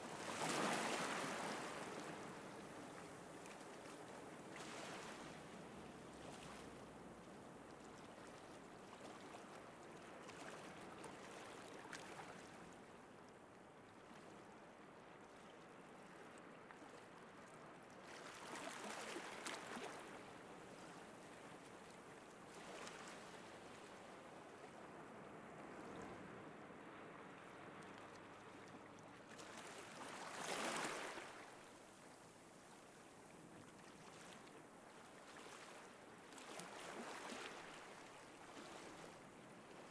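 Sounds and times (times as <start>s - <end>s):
sea surf on a beach: 0.0s - 7.8s, 18.6s - 39.9s
waves breaking: 0.1s - 7.2s, 20.8s - 39.9s.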